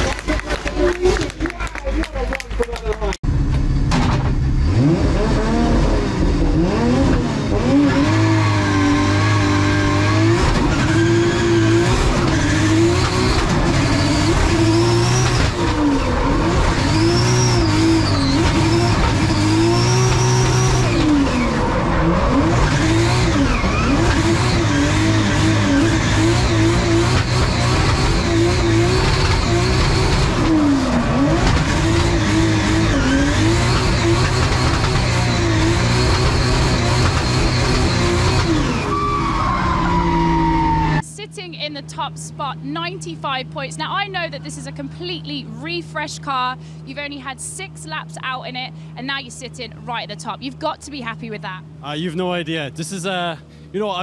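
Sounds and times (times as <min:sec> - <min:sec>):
car engine revving: 0:00.0 - 0:41.7
tyre squeal: 0:08.4 - 0:24.9, 0:36.1 - 0:41.0.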